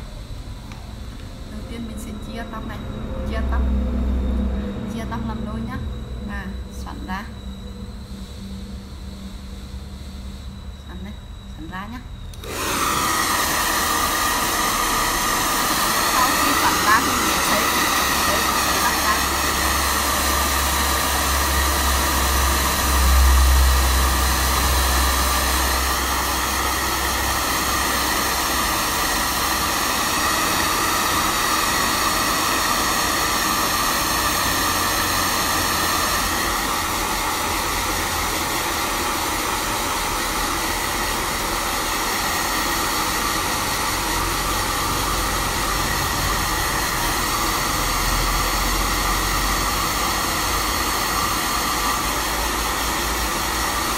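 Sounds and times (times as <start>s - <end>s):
low rumble: 0.0s - 12.5s
hair dryer running: 0.0s - 53.9s.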